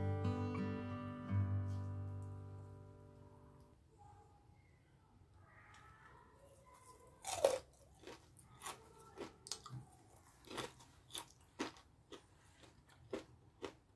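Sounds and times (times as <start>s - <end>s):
crunchy chewing: 6.6s - 13.9s.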